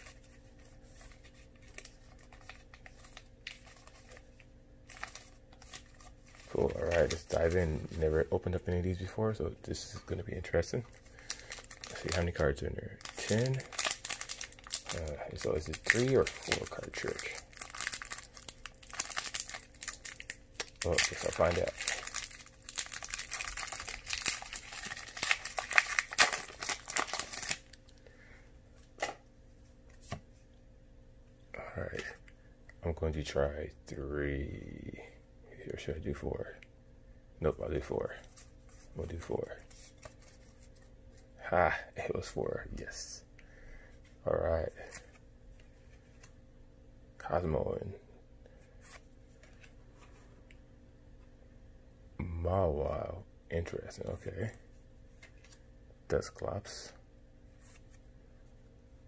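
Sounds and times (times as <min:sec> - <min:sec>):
foil wrappers crinkling: 0:00.0 - 0:08.9, 0:10.0 - 0:28.0.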